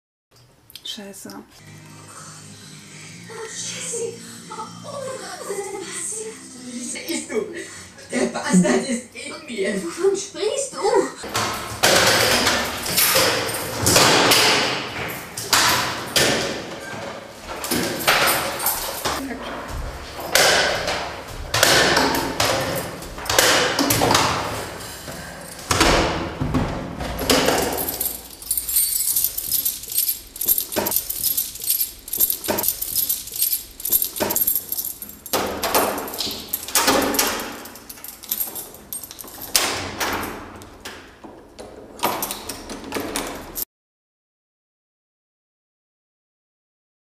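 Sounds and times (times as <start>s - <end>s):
key jangling in door lock: 11.9s - 14.5s, 17.7s - 19.2s, 27.2s - 40.5s, 42.0s - 43.6s.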